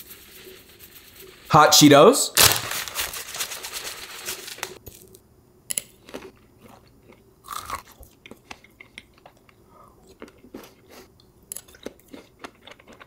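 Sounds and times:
snack crumbs pattering from bag: 0:02.4 - 0:05.1
crunching while eating: 0:04.6 - 0:13.0.

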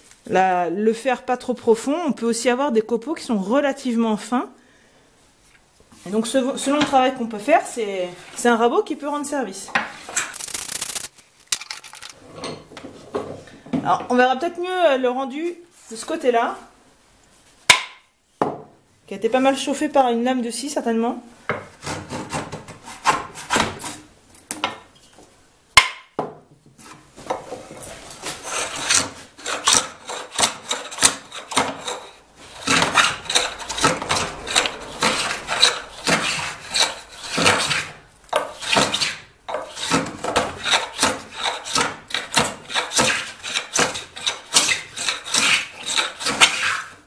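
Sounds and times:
hand plane shaving wood: 0:21.8 - 0:23.9, 0:27.5 - 0:47.0.

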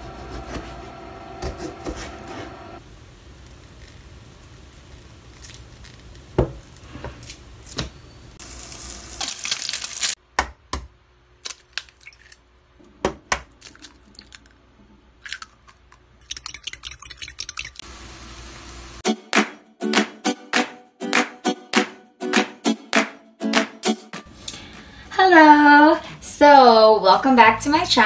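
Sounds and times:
egg sizzling in a pan: 0:08.4 - 0:10.2
eggshells cracking against a bowl: 0:11.4 - 0:12.4, 0:15.2 - 0:17.8.

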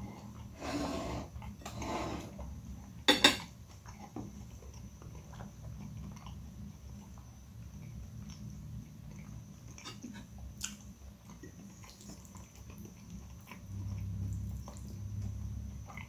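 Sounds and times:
low steady hum: 0:00.0 - 0:16.0
chewing noodles: 0:03.6 - 0:16.0.

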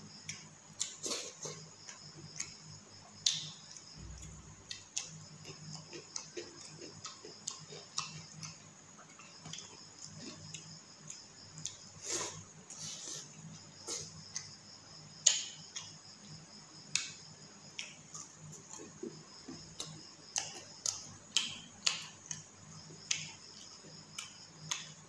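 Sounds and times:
faint steady hum: 0:00.0 - 0:25.0
chewing and lip-smacking: 0:03.2 - 0:11.9, 0:17.7 - 0:25.0.

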